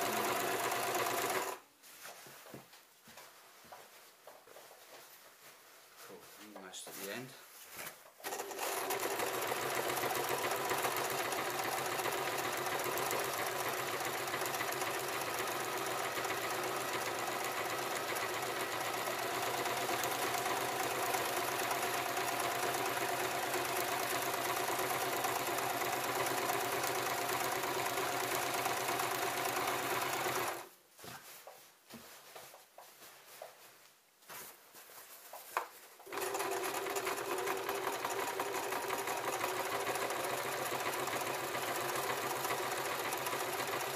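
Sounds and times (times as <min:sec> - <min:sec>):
electric sewing machine running: 0:00.0 - 0:01.6, 0:08.2 - 0:30.7, 0:36.1 - 0:43.9.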